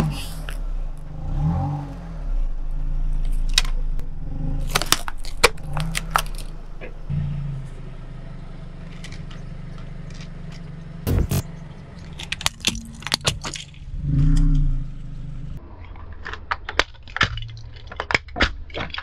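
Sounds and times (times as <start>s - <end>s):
car engine hum: 0.0s - 18.1s
plastic toy cracking under tyre: 4.6s - 6.5s, 12.0s - 13.8s, 15.8s - 19.0s.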